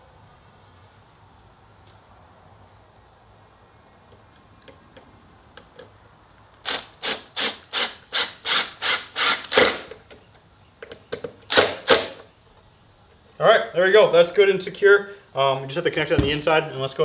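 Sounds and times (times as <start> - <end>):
cordless drill driving screws: 6.6 - 9.9.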